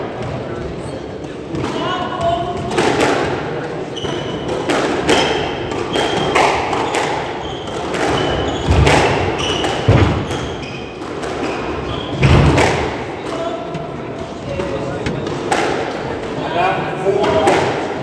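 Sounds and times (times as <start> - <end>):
squash ball struck by rackets: 0.0 - 14.0, 15.1 - 16.4
shoes squeaking on wooden floor: 3.9 - 12.7.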